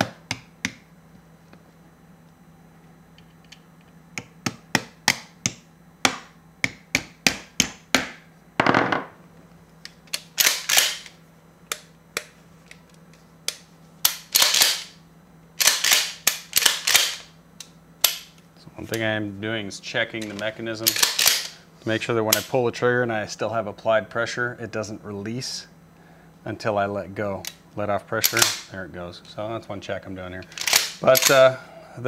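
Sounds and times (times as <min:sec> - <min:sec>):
sharp metal clicks: 0:09.8 - 0:12.3, 0:15.6 - 0:19.0, 0:20.2 - 0:21.6, 0:28.2 - 0:28.7, 0:30.4 - 0:31.5.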